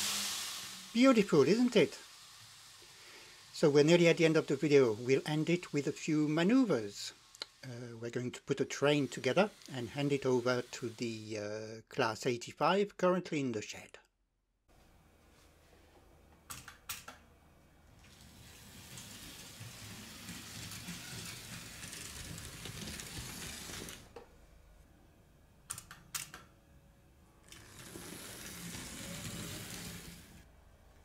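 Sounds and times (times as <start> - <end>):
model train rumbling over metal track: 27.6 - 30.4.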